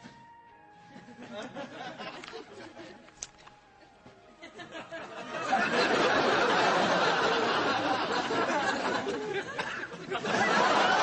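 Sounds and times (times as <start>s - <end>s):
audience laughing: 1.0s - 3.1s, 4.4s - 11.0s.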